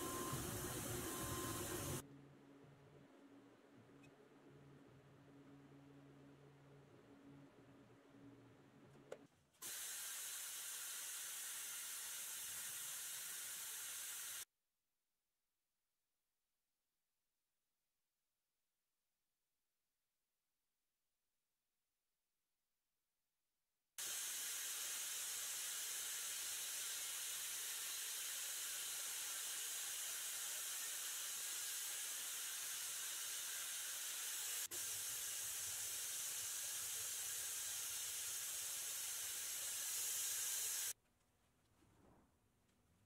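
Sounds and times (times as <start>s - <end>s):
compressed air spray gun hissing: 0.0s - 2.0s, 9.6s - 14.4s, 24.0s - 41.0s.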